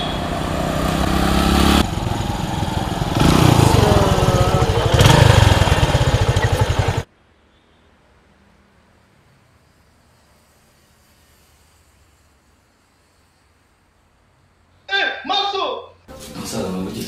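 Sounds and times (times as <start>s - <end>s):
small motorcycle engine running: 0.0s - 7.1s.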